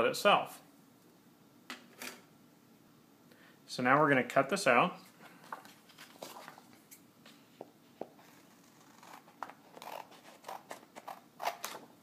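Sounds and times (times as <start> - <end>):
paper rustling: 5.2 - 7.4
scissors snipping paper: 8.7 - 11.8.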